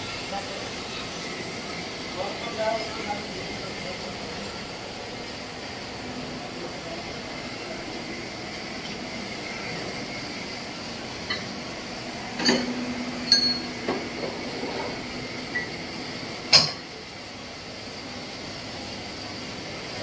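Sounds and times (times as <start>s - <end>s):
steady background hum: 0.0s - 20.0s
metal parts clinking and clanking: 12.4s - 13.7s.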